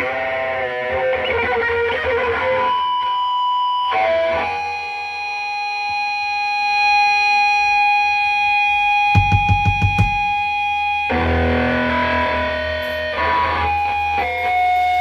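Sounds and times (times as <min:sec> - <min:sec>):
electric guitar notes: 0:08.6 - 0:15.0.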